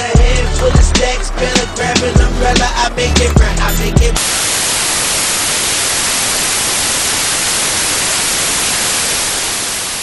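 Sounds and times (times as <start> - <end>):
television static hiss: 4.2 - 10.0.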